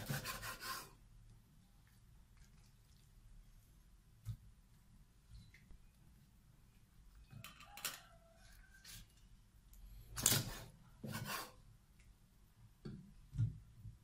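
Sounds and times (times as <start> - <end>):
cleaver scraping on wooden block: 0.0 - 0.9, 10.4 - 11.6.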